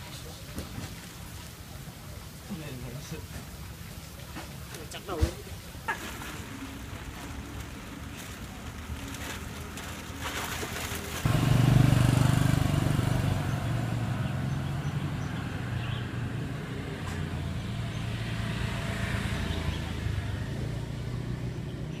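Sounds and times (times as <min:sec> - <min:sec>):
vehicle engine humming: 0:06.3 - 0:22.0.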